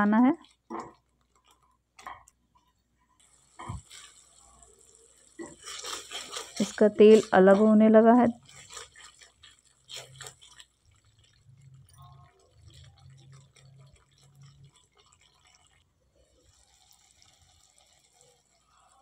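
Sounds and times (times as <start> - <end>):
sauce bubbling and plopping: 0.3 - 19.0
spatula scraping a pan: 2.6 - 4.4, 5.1 - 11.0.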